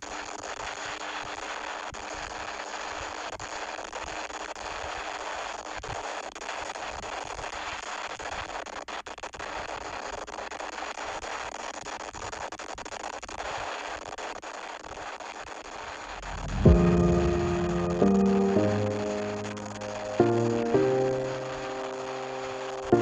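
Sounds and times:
microphone crackles and pops: 4.9s - 18.0s
wind and road noise: 16.1s - 16.7s.

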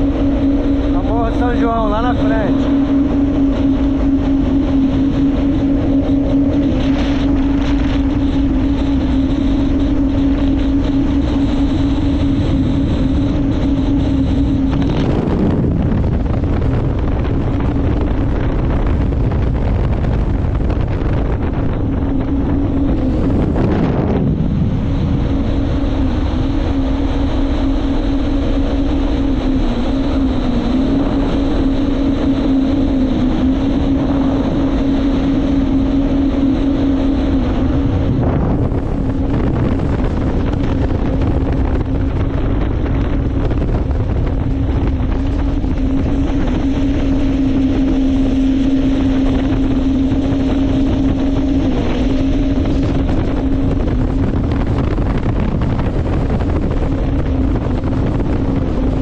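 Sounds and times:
jet ski engine running: 0.0s - 59.0s
wind rushing over microphone: 0.0s - 59.0s.

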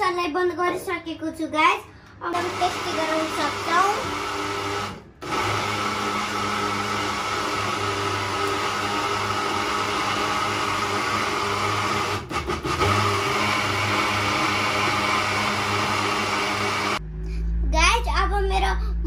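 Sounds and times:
electric mixer grinder running: 2.3s - 17.0s.

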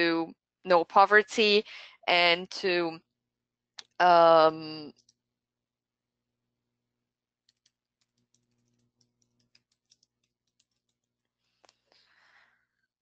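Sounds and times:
computer keyboard typing: 7.5s - 11.2s.

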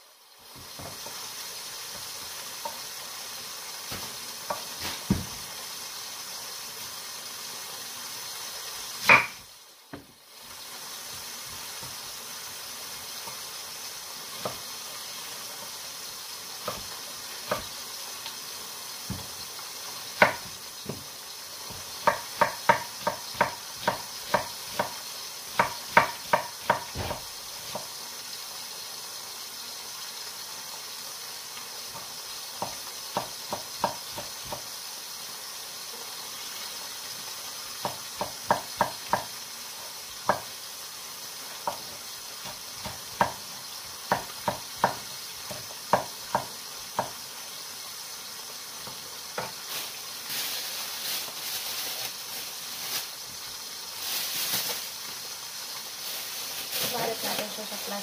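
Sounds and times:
knife chopping on wooden board: 3.9s - 5.4s, 9.0s - 10.1s, 19.1s - 19.3s, 20.2s - 21.0s, 21.7s - 25.0s, 25.6s - 27.9s, 32.6s - 34.6s, 37.8s - 39.3s, 42.4s - 43.4s, 44.1s - 47.2s.

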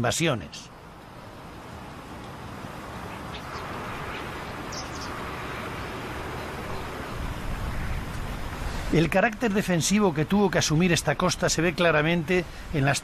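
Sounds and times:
outdoor background noise: 0.0s - 13.0s
faint bird chirps: 3.1s - 5.2s.

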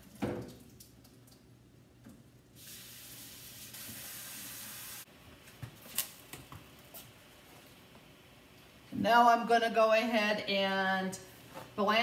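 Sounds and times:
tap water running: 2.1s - 5.1s.

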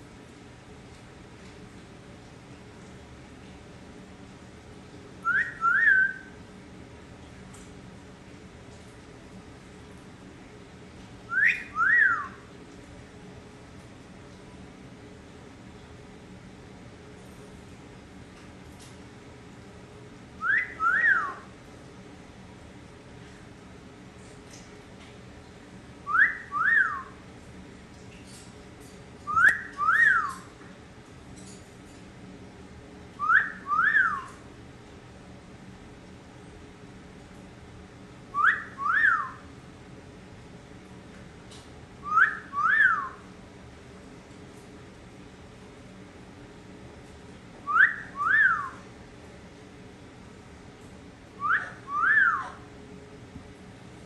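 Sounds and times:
parrot wolf whistle: 5.2s - 6.4s, 11.3s - 12.4s, 20.4s - 21.5s, 26.1s - 27.2s, 29.3s - 30.5s, 33.2s - 34.4s, 38.3s - 39.4s, 42.0s - 43.2s, 47.6s - 48.8s, 51.4s - 52.6s.

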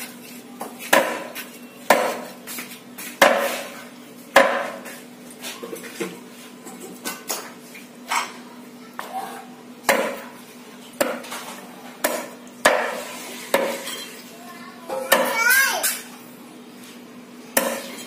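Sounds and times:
cleaver chopping on chopping block: 0.9s - 1.3s, 1.9s - 2.3s, 9.9s - 10.3s.

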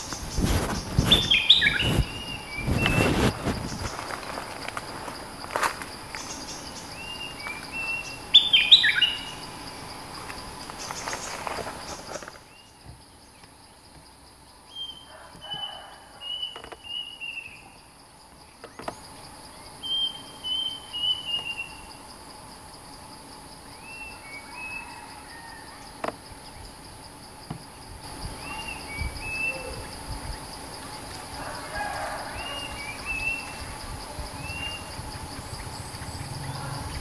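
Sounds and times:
high insect buzz: 0.0s - 37.0s
bird whistled song: 0.4s - 3.1s, 6.3s - 9.3s, 19.8s - 21.8s, 28.4s - 29.8s.

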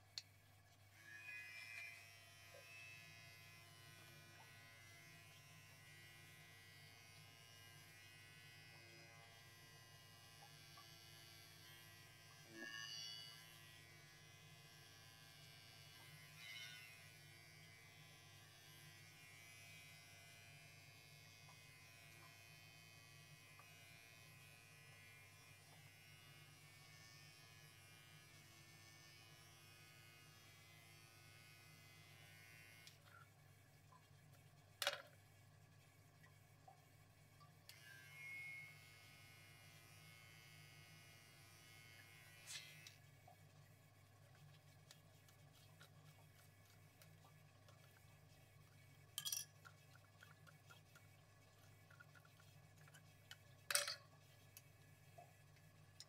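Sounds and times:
electric hair clippers buzzing: 1.0s - 33.1s, 37.7s - 43.0s.

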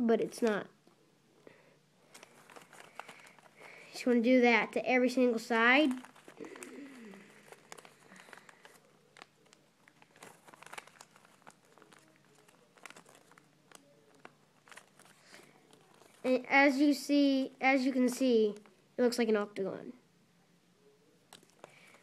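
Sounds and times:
paper crinkling while folded: 2.0s - 16.9s, 21.3s - 22.0s.

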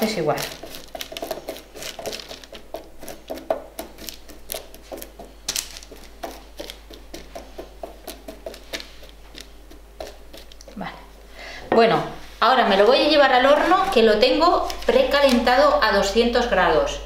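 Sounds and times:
chickpeas clicking together: 0.0s - 10.8s
spatula scraping on paper: 0.0s - 11.2s.

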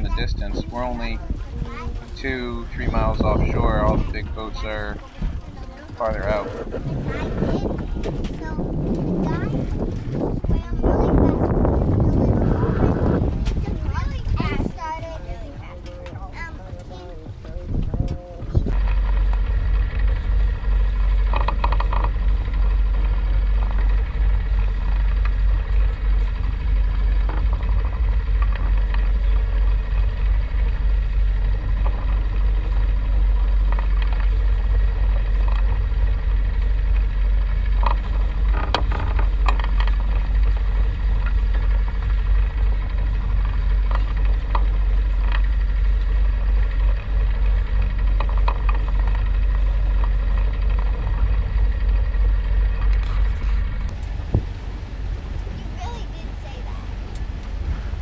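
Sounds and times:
sailboat rushing through water: 0.0s - 58.0s.

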